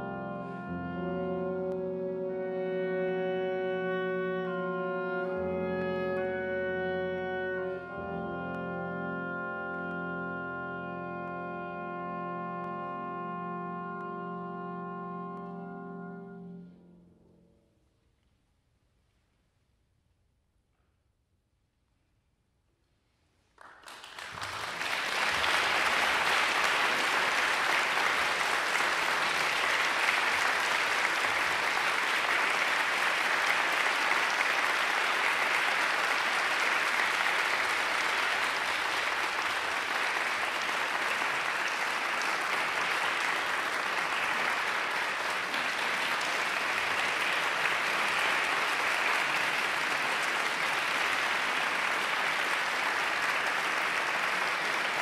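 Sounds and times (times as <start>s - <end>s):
audience clapping: 23.5s - 55.0s.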